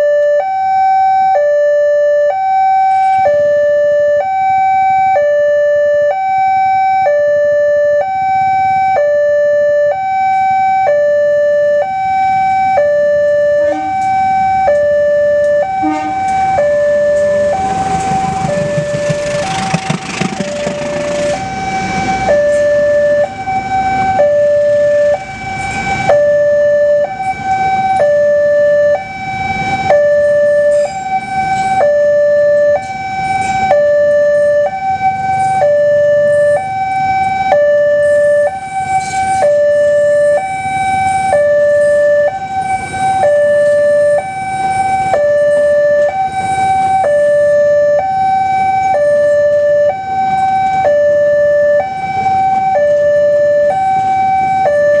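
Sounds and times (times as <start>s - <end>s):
two-tone level crossing alarm: 0.0s - 55.0s
train wheels rumbling on rails: 13.7s - 26.1s.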